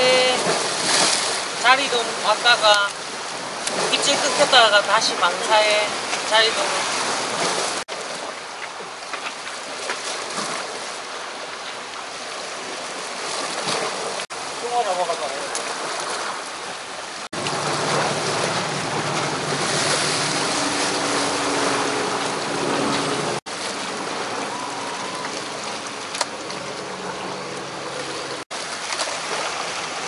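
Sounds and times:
seawater washing against rocks: 0.0 - 30.0
boat engine drone: 15.7 - 30.0.

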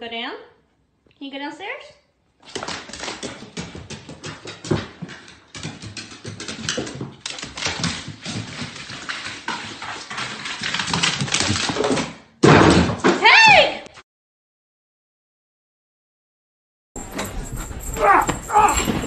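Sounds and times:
dog claws clattering on wooden stairs: 2.4 - 12.2, 17.2 - 19.0.

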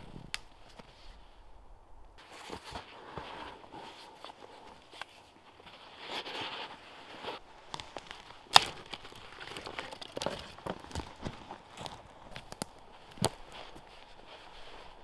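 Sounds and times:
backpack rustling and creaking: 2.2 - 15.0
footsteps on forest floor: 4.8 - 15.0.

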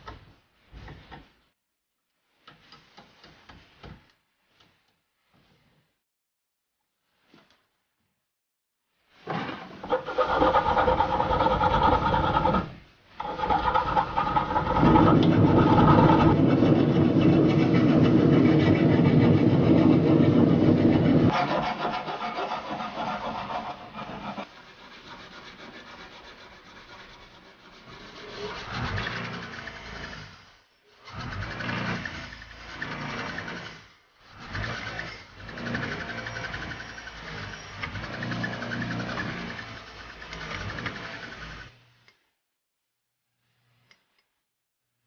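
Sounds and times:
bench grinder wire wheel running: 9.8 - 21.4, 34.4 - 41.7
hand file rasping on steel: 10.3 - 30.2.

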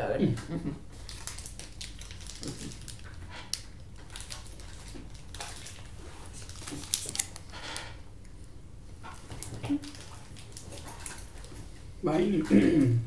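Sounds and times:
plastic wrapper crinkling: 0.9 - 7.9, 9.1 - 11.8.

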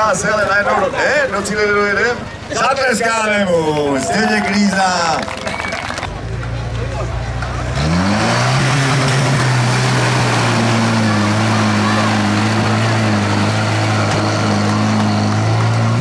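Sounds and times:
tractor engine running hard: 6.2 - 16.0.

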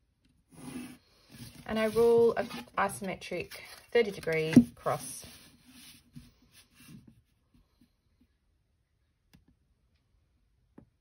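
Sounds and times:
pencil ruling lines on paper: 0.5 - 2.8.

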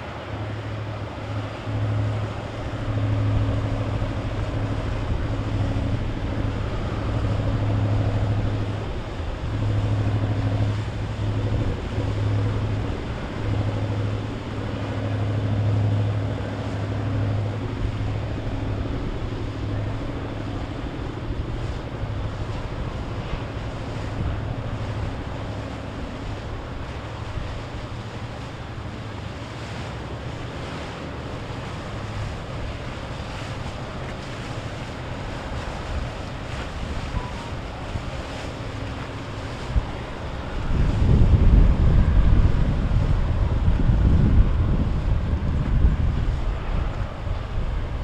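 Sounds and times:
powerboat engines humming: 0.0 - 48.0
water wash: 0.0 - 48.0
wind noise: 0.0 - 48.0.

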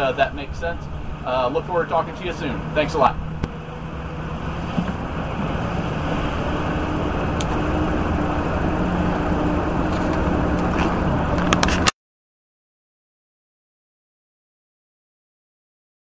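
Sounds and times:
engine drone: 0.0 - 11.9.

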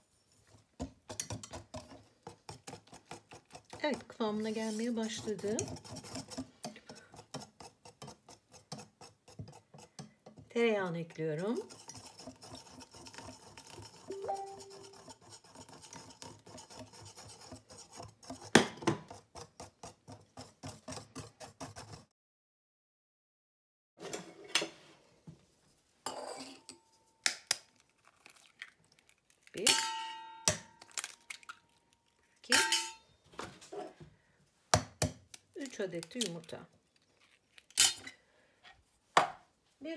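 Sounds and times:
wire whisk beating batter in bowl: 0.3 - 22.1
eggs cracking: 27.3 - 29.7, 30.6 - 32.4.

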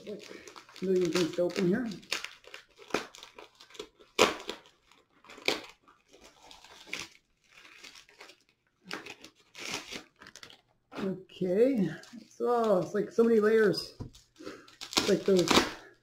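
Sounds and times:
mailer crinkling and tearing: 0.0 - 10.7, 14.1 - 16.0.

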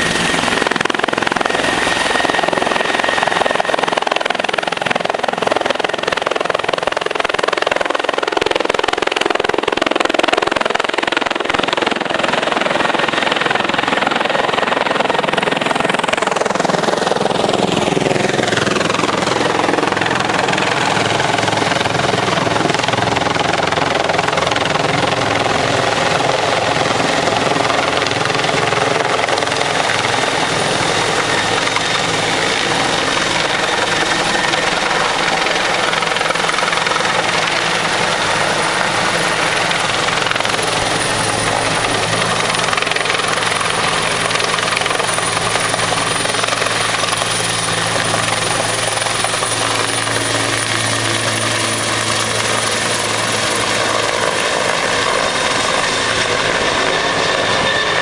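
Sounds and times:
helicopter engines and rotor: 0.0 - 58.0
high turbine whine: 0.0 - 58.0.

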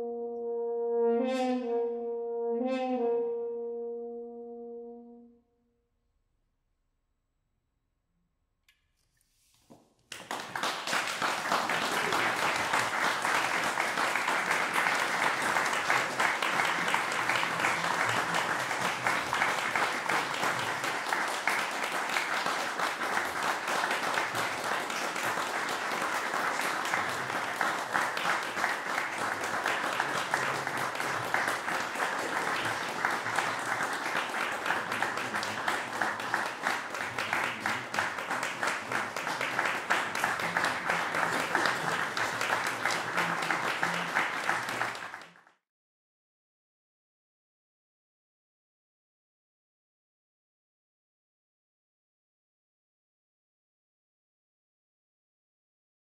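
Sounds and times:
audience applause: 10.1 - 45.5.

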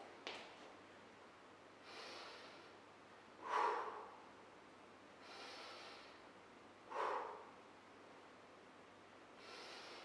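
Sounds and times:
man breathing hard: 1.8 - 2.8, 3.4 - 4.3, 5.2 - 6.3, 6.9 - 7.6, 9.4 - 10.0.

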